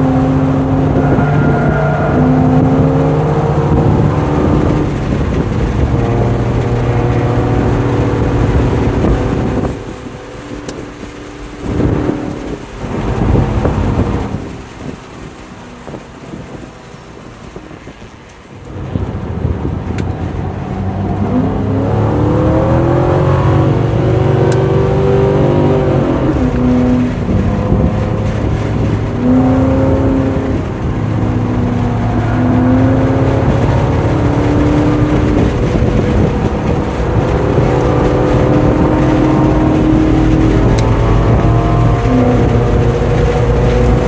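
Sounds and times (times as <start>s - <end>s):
car engine accelerating: 0.0s - 44.0s.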